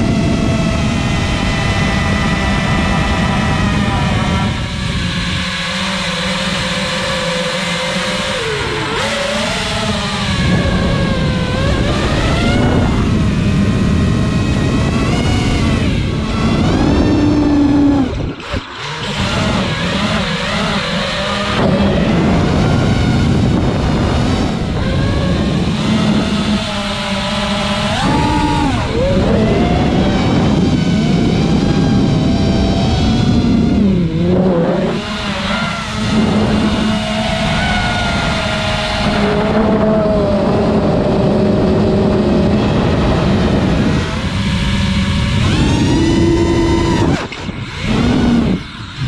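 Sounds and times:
quadcopter motors whining: 0.0s - 49.0s.

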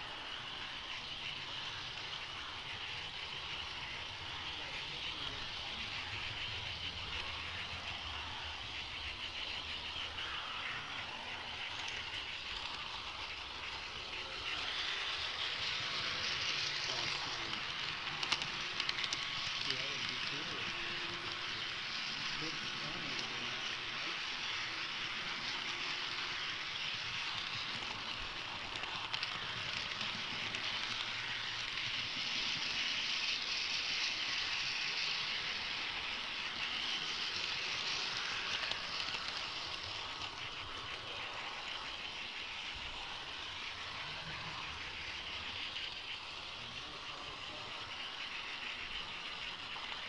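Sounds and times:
model train rolling on track: 0.0s - 50.0s
faint clicks: 16.9s - 20.2s.

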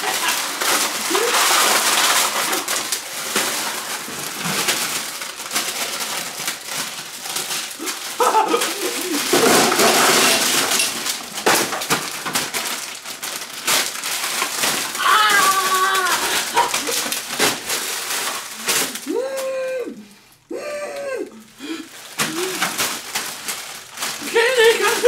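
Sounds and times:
plastic wrappers rustling and crinkling: 0.0s - 25.0s
wrapped candies clattering: 0.0s - 25.0s
short voice-like sounds: 18.8s - 21.4s.

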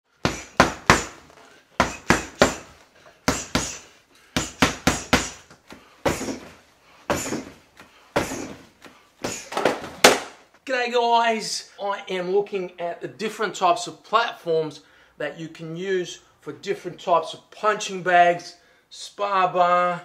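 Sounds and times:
gloved punches on punching bags: 0.1s - 10.4s.

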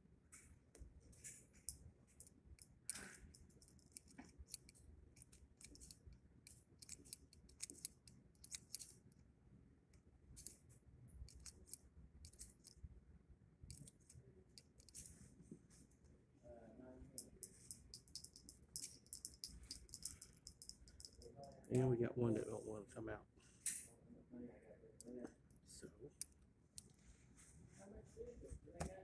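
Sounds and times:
brass cases clinking: 17.2s - 21.8s.

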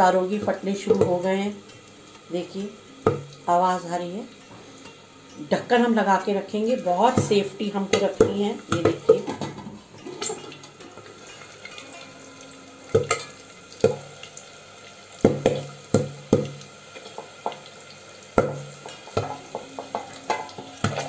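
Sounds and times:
faint sizzle: 0.0s - 21.0s
chickpeas popping in oil: 0.4s - 3.6s, 6.7s - 12.0s, 12.9s - 21.0s.

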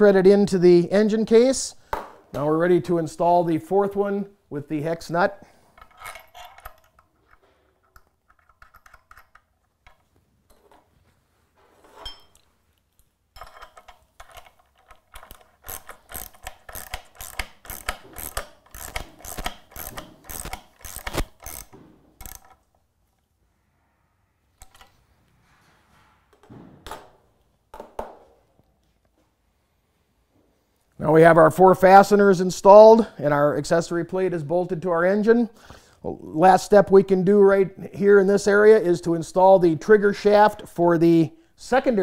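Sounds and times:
socket ratchet clicking: 13.4s - 22.7s.

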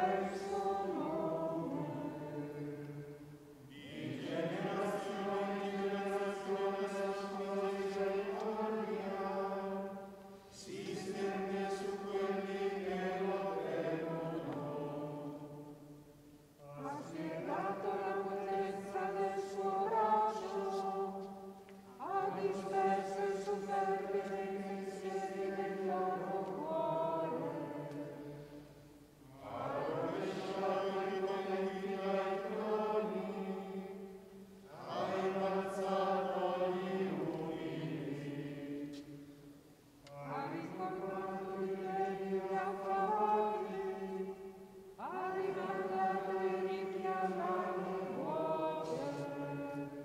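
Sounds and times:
voices chanting in unison: 0.0s - 16.0s, 16.6s - 39.5s, 40.1s - 50.0s.

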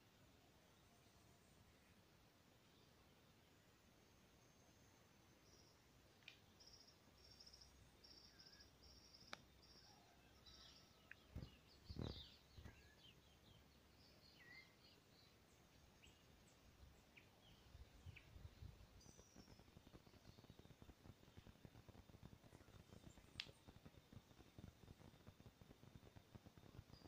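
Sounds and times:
birds chirping and whistling: 11.4s - 13.2s
light crackling: 18.1s - 27.0s.

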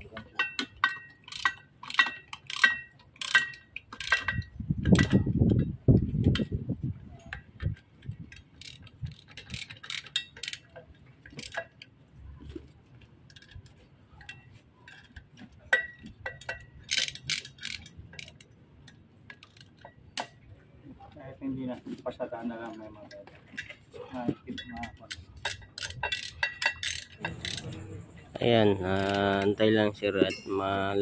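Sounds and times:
wrenches clinking on metal bolts: 0.0s - 6.5s, 7.1s - 11.9s, 13.3s - 20.4s, 24.4s - 31.0s
low rumbling handling noise: 25.2s - 31.0s.

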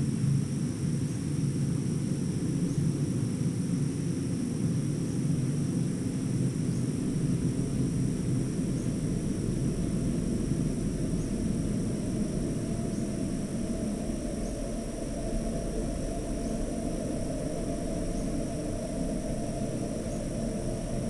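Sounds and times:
constant low rumble: 0.0s - 21.0s
crickets trilling: 0.0s - 21.0s.

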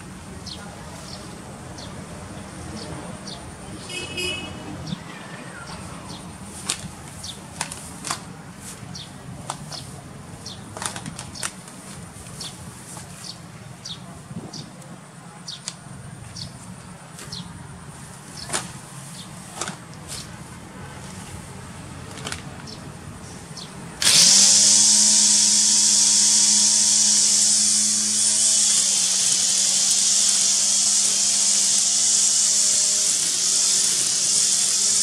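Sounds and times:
grass cutter motor humming: 24.0s - 35.0s.

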